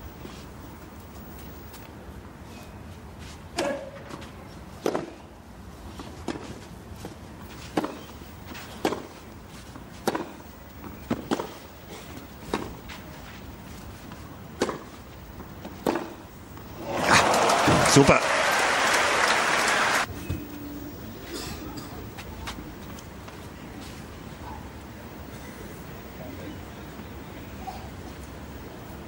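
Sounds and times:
tennis ball struck with rackets: 0:04.8 - 0:05.2, 0:07.8 - 0:08.1, 0:08.8 - 0:09.1, 0:10.0 - 0:10.4, 0:11.1 - 0:11.6, 0:14.6 - 0:14.9, 0:15.8 - 0:16.2.

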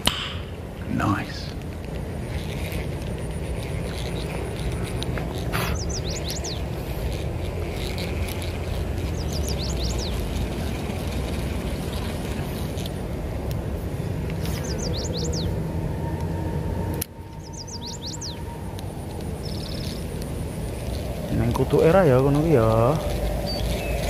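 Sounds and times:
steady low rumble: 0:00.0 - 0:24.0
bird singing: 0:02.4 - 0:04.7, 0:05.4 - 0:10.8, 0:14.4 - 0:16.2, 0:17.1 - 0:24.0.

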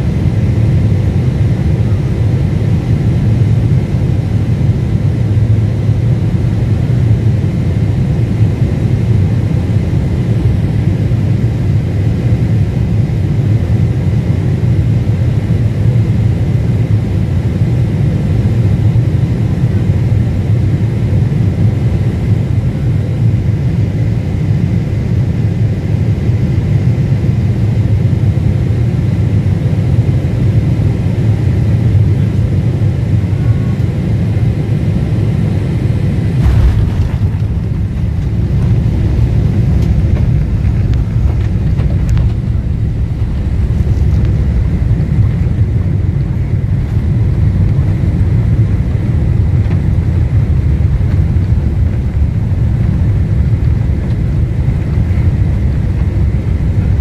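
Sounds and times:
airliner cabin low rumble: 0:00.0 - 0:57.0
faint steady whine: 0:24.7 - 0:57.0.

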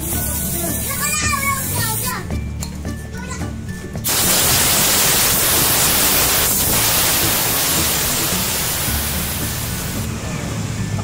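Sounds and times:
pressurised jet hissing: 0:04.0 - 0:10.1.

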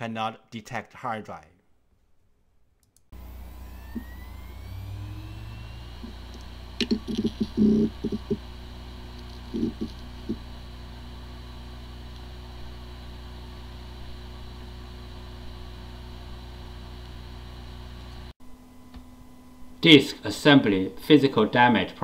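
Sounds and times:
hard disk drive spinning: 0:03.2 - 0:18.3.

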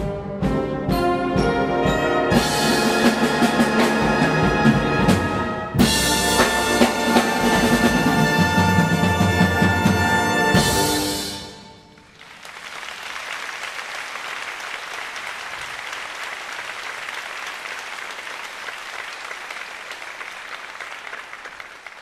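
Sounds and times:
audience applause: 0:12.0 - 0:22.0.

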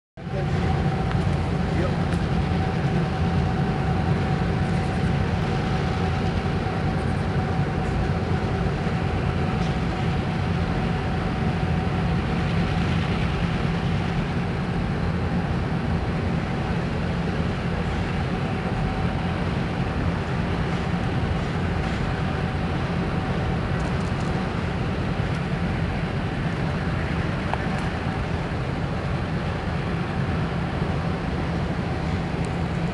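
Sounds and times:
diesel locomotive rumble: 0:00.2 - 0:32.9.

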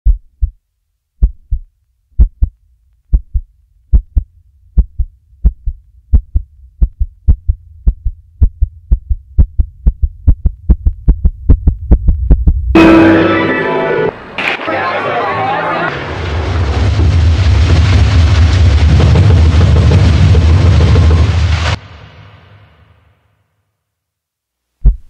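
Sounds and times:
heartbeat-like double thumps: 0:00.0 - 0:00.6, 0:01.2 - 0:12.8
low hum: 0:00.0 - 0:14.4, 0:15.9 - 0:25.0.

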